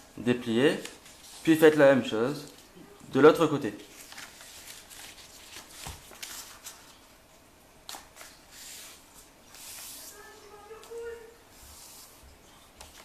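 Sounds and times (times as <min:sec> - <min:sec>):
paper rustling and crinkling: 0:00.7 - 0:01.8, 0:03.9 - 0:07.1, 0:07.9 - 0:13.0.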